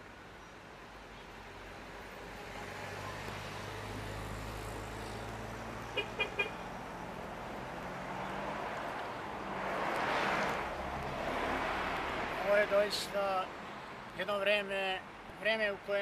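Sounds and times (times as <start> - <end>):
motor vehicle engine humming: 3.0 - 12.4
car horn toots: 5.9 - 6.6.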